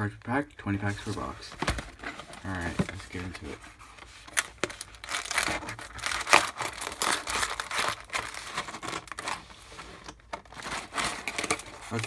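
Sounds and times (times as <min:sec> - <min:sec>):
cardboard box tearing and crinkling: 0:04.4 - 0:09.5, 0:10.4 - 0:12.0.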